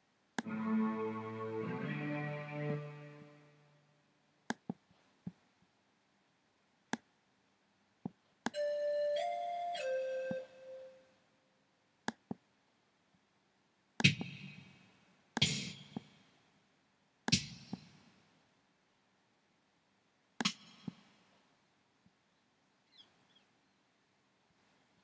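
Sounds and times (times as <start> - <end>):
synthesizer pan flute notes: 0.4 - 3.6, 8.6 - 11.1
synthesizer orchestral chord: 0.4 - 3.7.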